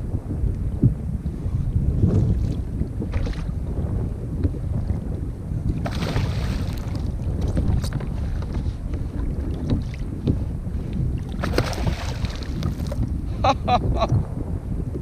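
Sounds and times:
wind rumbling on microphone: 0.0s - 15.0s
water splashing against kayak: 2.0s - 3.7s, 5.6s - 13.3s.

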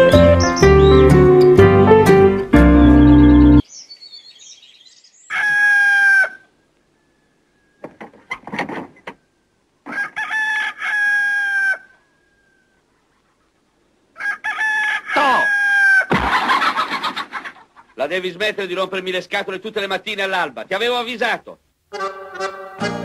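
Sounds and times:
rooster short calls: 5.3s - 6.5s, 14.2s - 16.1s
rooster crowing: 5.3s - 8.0s, 9.9s - 12.8s, 14.2s - 16.1s.

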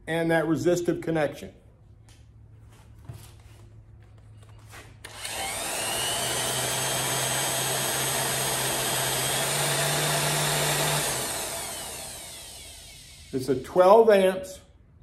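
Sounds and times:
heat gun fan whirring: 4.7s - 14.2s.

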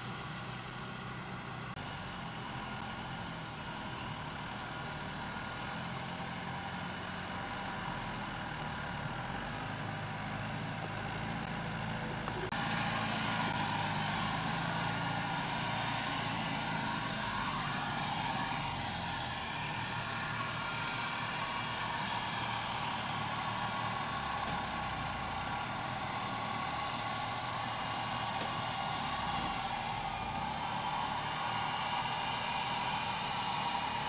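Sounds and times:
tractor engine running under load: 0.0s - 34.0s.

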